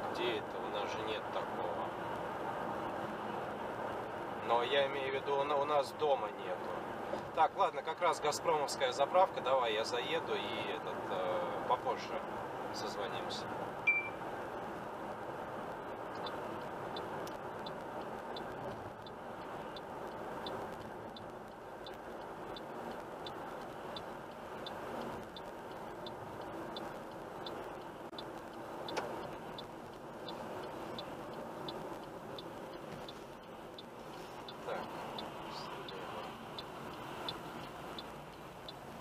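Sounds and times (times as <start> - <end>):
road and engine noise in cabin: 0.0 - 39.0
turn-signal indicator ticking: 15.7 - 39.0.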